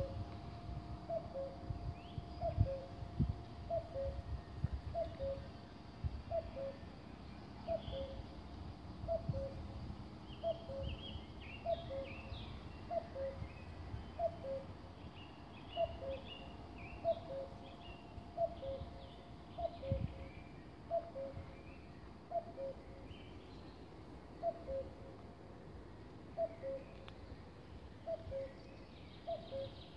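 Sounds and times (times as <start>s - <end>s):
cuckoo calling: 1.0s - 3.0s, 3.6s - 5.5s, 6.2s - 6.8s, 7.6s - 8.2s, 9.0s - 9.6s, 10.4s - 13.5s, 14.1s - 14.8s, 15.7s - 23.2s, 24.4s - 25.1s, 26.3s - 27.2s, 28.0s - 29.9s.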